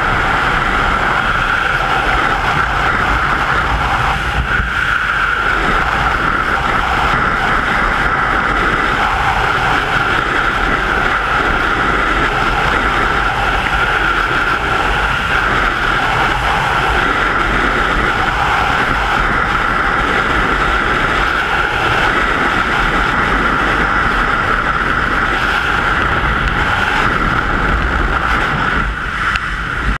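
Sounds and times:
deep buffeting rumble: 0:00.0 - 0:30.0
freefall air rushing over microphone: 0:00.0 - 0:30.0.

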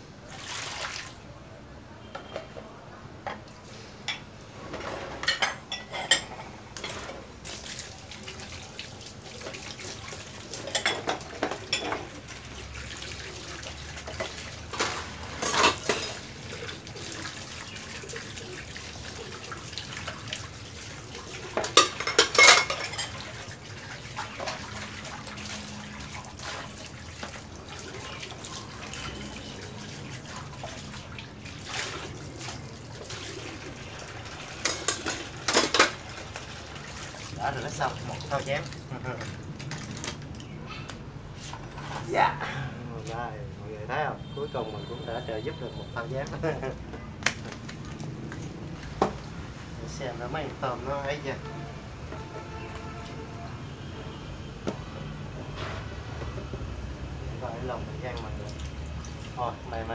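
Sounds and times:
tap water running into basin: 0:00.2 - 0:01.2, 0:06.8 - 0:40.6, 0:57.6 - 0:59.9
bowls clinking: 0:04.1 - 0:07.2, 0:10.6 - 0:12.2, 0:14.1 - 0:16.4, 0:21.2 - 0:23.4, 0:34.6 - 0:36.0.

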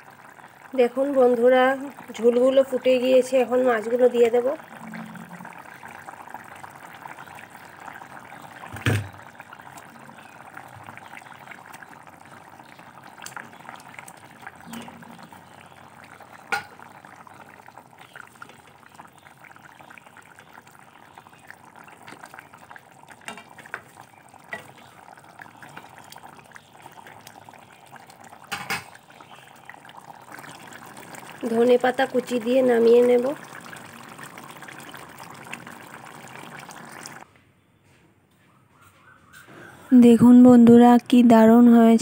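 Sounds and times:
gravy boiling in pan: 0:00.0 - 0:37.3.

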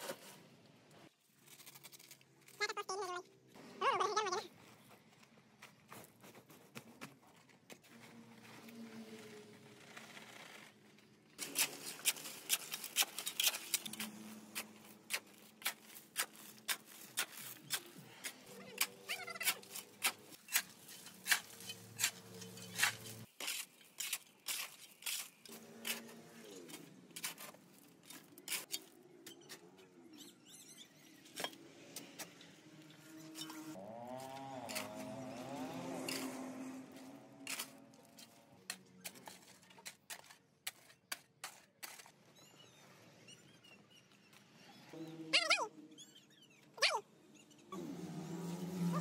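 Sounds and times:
shovel scraping gravel: 0:11.4 - 0:29.0, 0:33.0 - 0:42.2.

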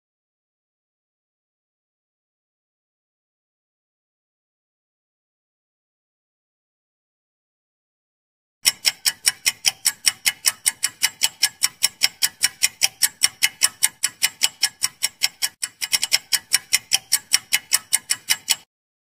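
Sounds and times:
fast clock ticking: 0:08.6 - 0:18.7.

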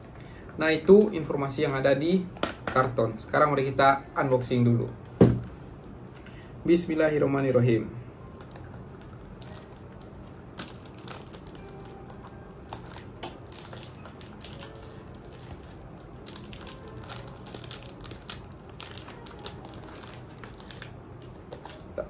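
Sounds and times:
cardboard packaging crinkling: 0:08.3 - 0:22.0.

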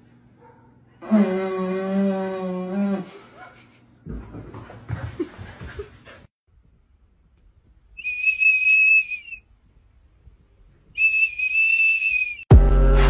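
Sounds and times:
high-pitched whistle toots: 0:08.0 - 0:09.4, 0:11.0 - 0:12.5.

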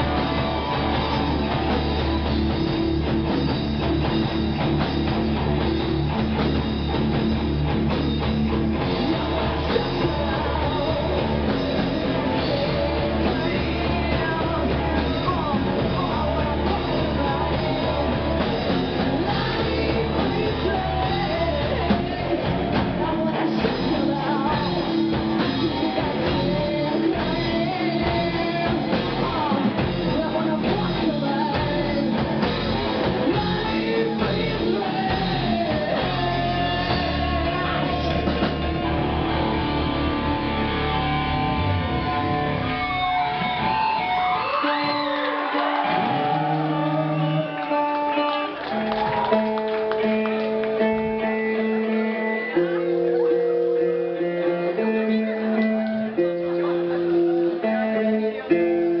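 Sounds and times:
drum kit: 0:00.0 - 0:53.2
electric guitars: 0:00.0 - 0:59.0
woman singing into a microphone: 0:09.0 - 0:38.3.

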